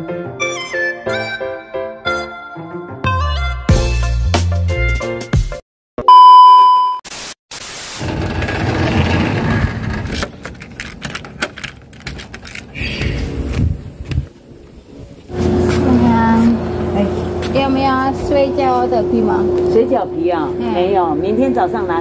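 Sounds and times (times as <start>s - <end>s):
harmonica tune: 0.4s - 2.5s
street noise rumble: 8.0s - 22.0s.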